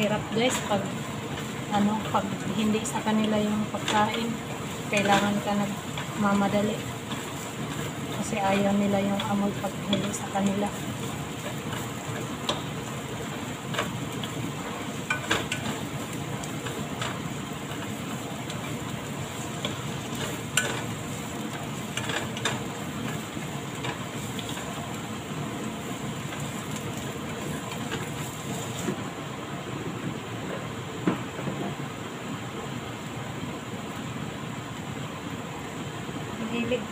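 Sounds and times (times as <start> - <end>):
onions sizzling in hot oil: 0.0 - 29.4
spatula clicking against pan: 11.4 - 12.7.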